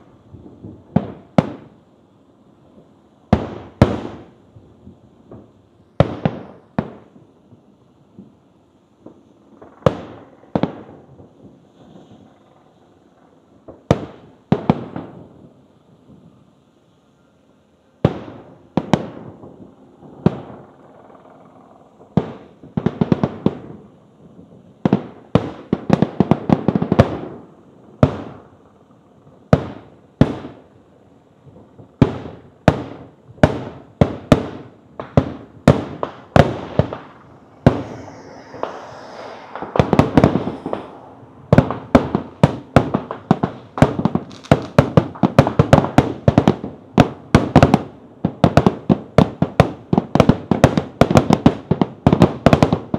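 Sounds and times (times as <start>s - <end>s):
fireworks bangs with echoes: 0.0s - 1.8s, 3.3s - 4.4s, 5.3s - 7.2s, 13.6s - 15.5s, 18.0s - 21.2s, 22.0s - 28.4s, 31.6s - 52.9s
fireworks crackling hiss: 0.0s - 20.6s, 29.5s - 52.8s.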